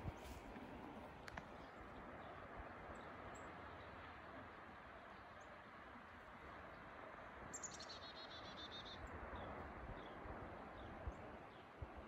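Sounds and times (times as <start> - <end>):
flowing river: 0.0 - 12.0
songbird trill: 7.5 - 11.8.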